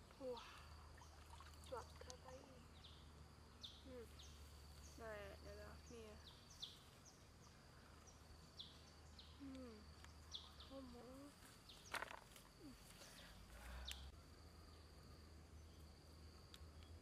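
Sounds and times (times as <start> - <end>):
bird chirps: 0.4 - 12.2.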